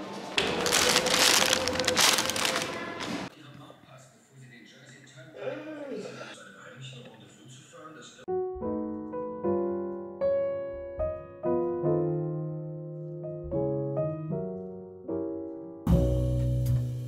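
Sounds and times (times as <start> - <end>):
slow piano music: 8.3 - 17.0
music with bass and drums: 15.9 - 17.0.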